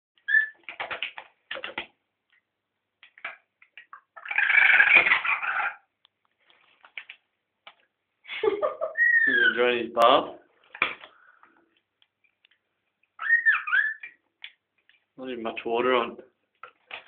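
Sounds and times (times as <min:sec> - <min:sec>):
parrot chirping and chattering: 0:00.2 - 0:01.0, 0:03.2 - 0:05.9, 0:08.9 - 0:09.7, 0:13.0 - 0:14.3.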